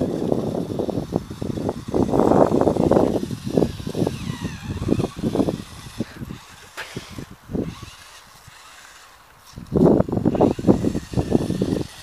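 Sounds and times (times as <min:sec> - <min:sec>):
faint motor whine: 0:00.0 - 0:12.0
rc car scrabbling on sand: 0:00.0 - 0:12.0.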